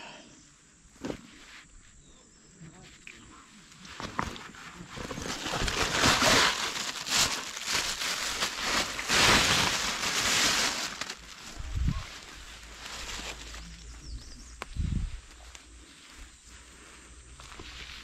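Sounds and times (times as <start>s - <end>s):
mesh net rustling: 3.8s - 14.0s
plastic bag crinkling: 5.0s - 13.8s.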